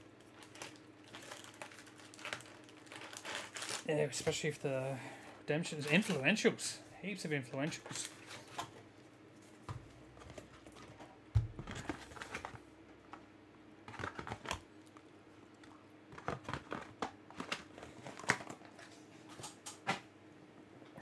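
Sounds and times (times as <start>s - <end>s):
cards rustling: 5.7s - 6.3s.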